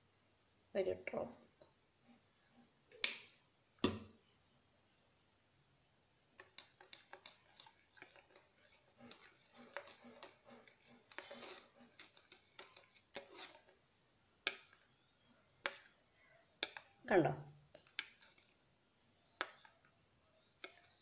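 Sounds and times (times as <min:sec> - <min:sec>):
metal spoon stirring in plastic cup: 0:06.3 - 0:13.8, 0:16.6 - 0:17.0, 0:17.7 - 0:18.8, 0:19.4 - 0:19.8, 0:20.4 - 0:21.0.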